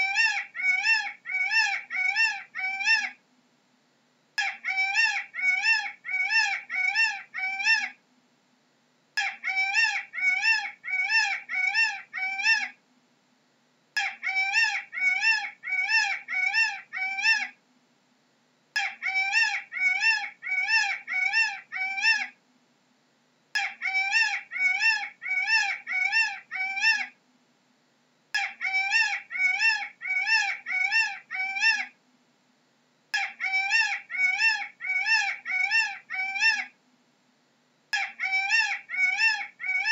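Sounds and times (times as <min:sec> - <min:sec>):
peacock calling: 0:00.0 - 0:03.2, 0:04.4 - 0:08.0, 0:09.2 - 0:12.8, 0:14.0 - 0:17.6, 0:18.8 - 0:22.4, 0:23.6 - 0:27.2, 0:28.4 - 0:32.0, 0:33.2 - 0:36.8, 0:37.9 - 0:39.9
faint steady hum: 0:00.0 - 0:39.9.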